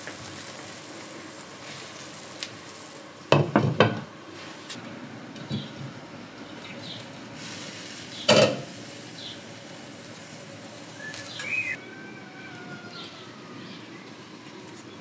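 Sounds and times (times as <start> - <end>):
steady background hiss: 0.0 - 15.0
faint bird chirps: 10.9 - 14.1.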